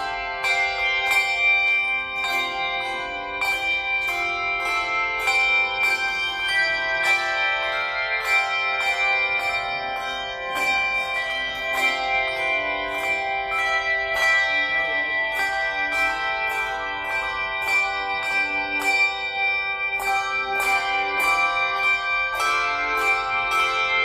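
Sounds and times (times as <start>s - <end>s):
handbell choir ringing melody: 0.0s - 24.0s.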